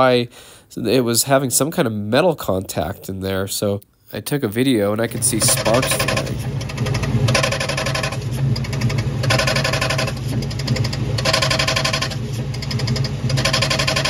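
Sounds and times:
metal grinding: 5.0 - 14.0.

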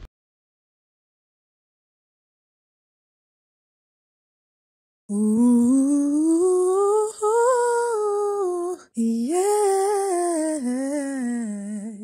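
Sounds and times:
woman singing wordless melody: 5.1 - 12.0.

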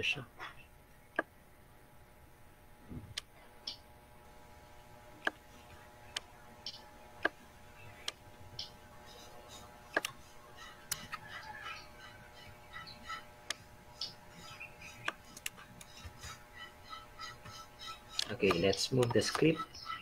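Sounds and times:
faint steady hum: 0.0 - 20.0
computer mouse clicking: 10.0 - 10.2, 15.0 - 15.9.

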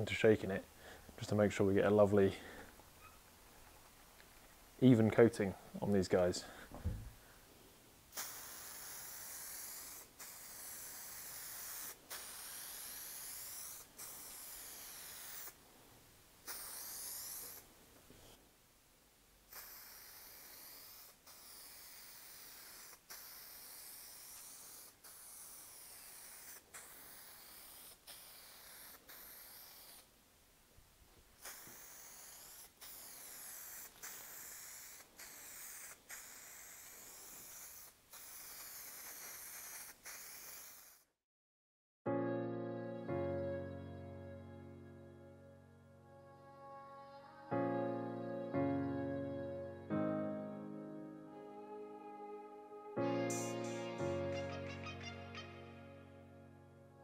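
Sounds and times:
aerosol can spraying hiss: 8.1 - 15.6, 16.4 - 17.6, 19.5 - 30.1, 31.4 - 41.1, 53.2 - 54.2.

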